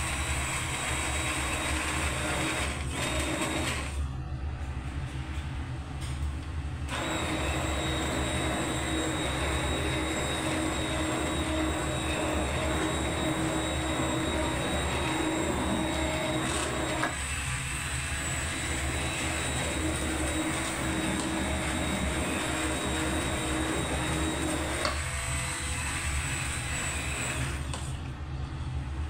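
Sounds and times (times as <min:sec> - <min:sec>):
immersion blender motor whine: 0:06.9 - 0:27.9.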